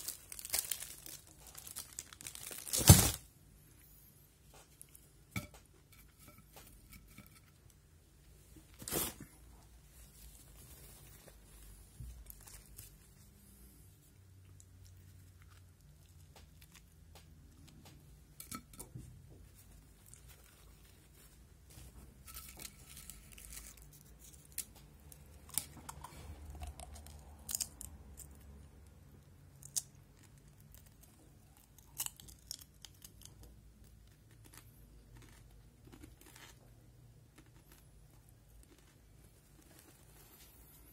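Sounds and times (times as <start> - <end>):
potato chips crunching: 0.0 - 3.2, 22.3 - 28.5, 29.5 - 33.5.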